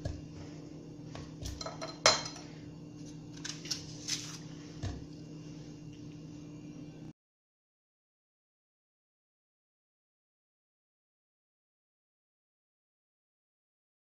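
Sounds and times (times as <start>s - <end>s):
steady low hum: 0.0s - 7.1s
knife clinking on glass plate: 1.6s - 2.4s.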